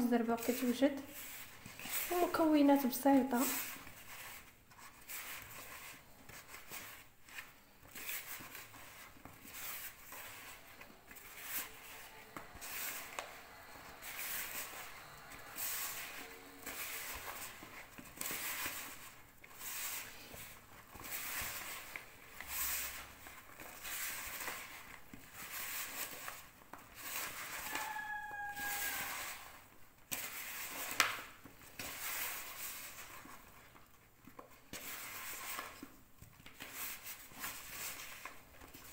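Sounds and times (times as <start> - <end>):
hands squishing butter in bowl: 0.0 - 38.9
falling high tone: 27.6 - 29.4.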